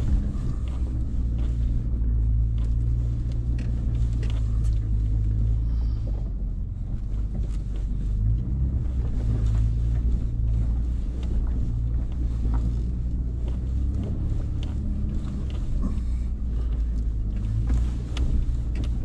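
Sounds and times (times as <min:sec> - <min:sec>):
truck engine running at low speed: 0:00.0 - 0:19.0
light clicks and knocks: 0:06.1 - 0:19.0.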